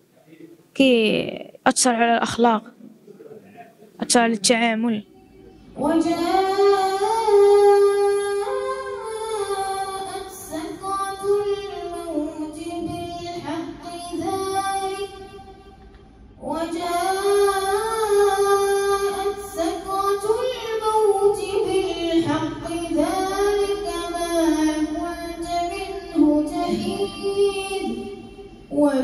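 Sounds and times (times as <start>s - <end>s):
boy chanting into a microphone: 5.8s - 15.5s, 16.4s - 29.0s.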